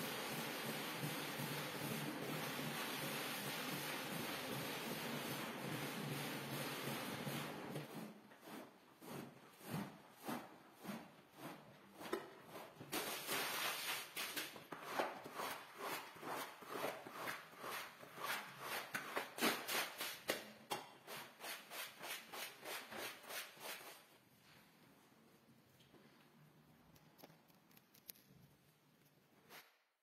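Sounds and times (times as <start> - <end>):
squeegee scraping wet rug: 0.0 - 20.4, 21.0 - 24.1.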